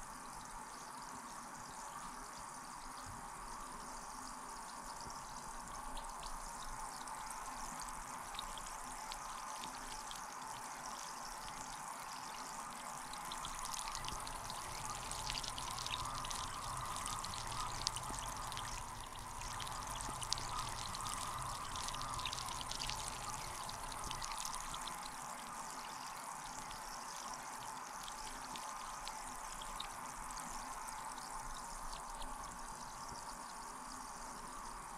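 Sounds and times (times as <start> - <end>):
gas bubbling in bathtub water: 5.5 - 33.3.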